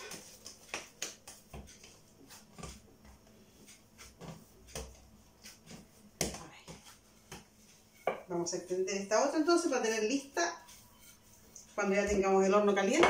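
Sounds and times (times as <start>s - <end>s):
hands patting dough: 0.0s - 13.0s
rolling pin rolling dough: 0.0s - 13.0s.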